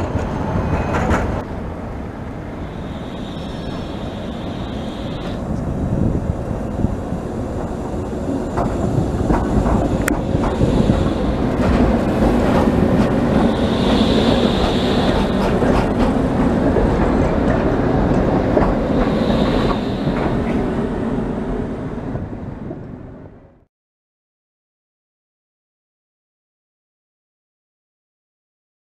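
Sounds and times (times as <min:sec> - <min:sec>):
tram rolling rumble: 0:00.0 - 0:23.7
high wheel squeals: 0:02.6 - 0:05.6, 0:13.4 - 0:16.0, 0:19.0 - 0:20.7
wheels clicking over rail joints: 0:07.6 - 0:13.7.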